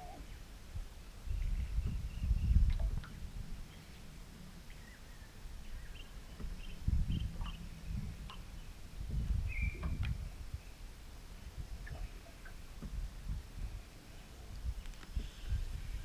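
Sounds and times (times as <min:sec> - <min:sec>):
low rumble: 0:00.7 - 0:16.0
faint bird chirps: 0:09.5 - 0:10.8.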